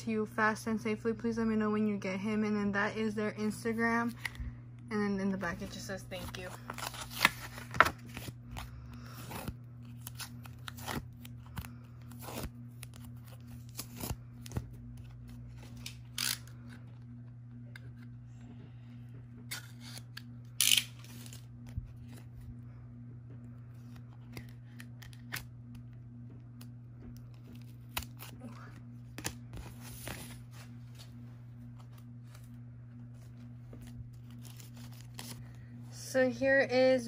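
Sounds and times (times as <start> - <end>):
faint low hum: 0.0 - 37.0
paper rustling: 33.2 - 35.4.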